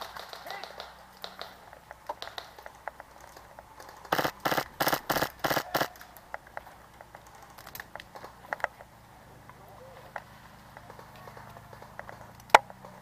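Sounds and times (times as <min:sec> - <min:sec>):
airsoft gun shots: 0:04.1 - 0:06.1.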